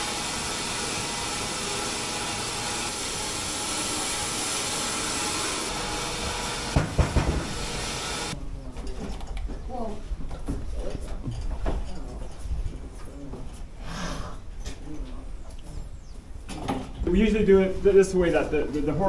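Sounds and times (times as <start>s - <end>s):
sawmill machinery hiss and rattle: 0.0s - 8.4s
loud clanking knocks: 6.2s - 7.8s.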